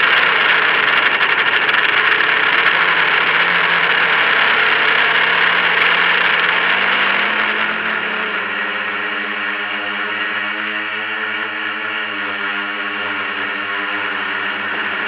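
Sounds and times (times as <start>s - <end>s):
drone propellers whirring: 0.0s - 15.0s.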